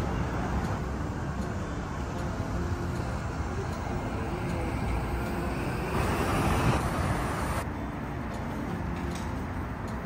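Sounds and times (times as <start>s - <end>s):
passing road traffic hum: 0.0s - 10.0s
vehicle passing loudly: 4.1s - 7.6s.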